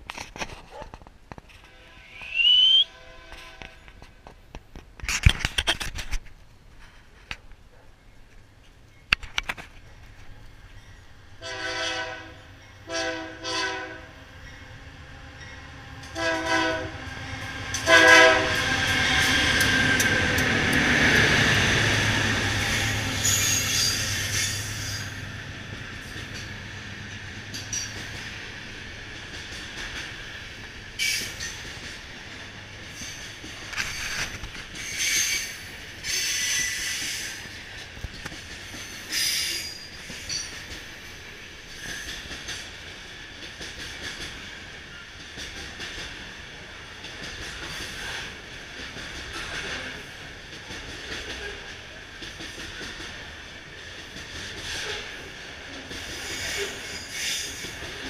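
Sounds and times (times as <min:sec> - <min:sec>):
diesel locomotive engine: 0:06.6 - 0:58.0
high wheel squeals: 0:23.2 - 0:25.2.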